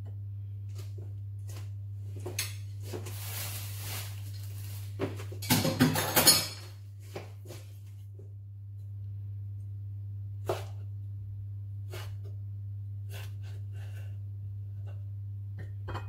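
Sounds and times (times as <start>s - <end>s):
steady low hum: 0.0s - 16.0s
dishes and utensils clattering: 5.4s - 6.8s, 15.6s - 16.0s.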